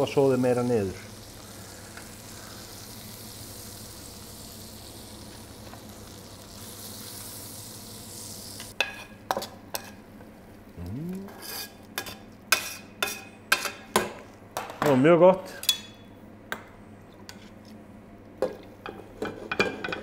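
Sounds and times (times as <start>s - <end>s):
bones sizzling in frying pan: 0.0s - 8.8s.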